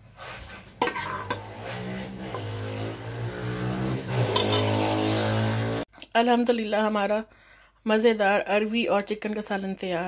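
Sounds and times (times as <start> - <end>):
ladle clinking on pot: 4.3 - 4.7.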